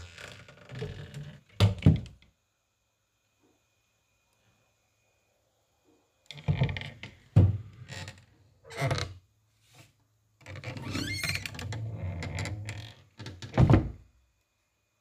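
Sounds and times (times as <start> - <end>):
loud door thump: 13.6 - 14.0.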